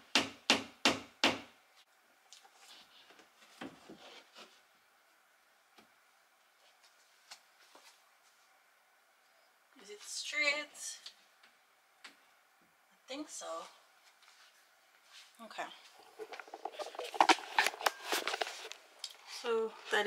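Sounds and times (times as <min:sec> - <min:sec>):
hammer striking nail: 0:00.1 - 0:01.5.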